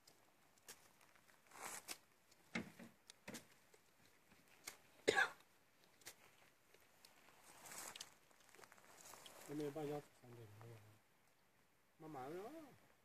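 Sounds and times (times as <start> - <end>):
person coughing: 5.1 - 5.4.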